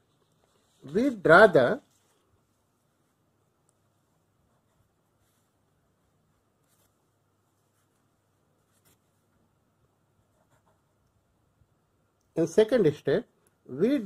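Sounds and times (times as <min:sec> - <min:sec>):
pen scratching on paper: 0:10.2 - 0:11.1.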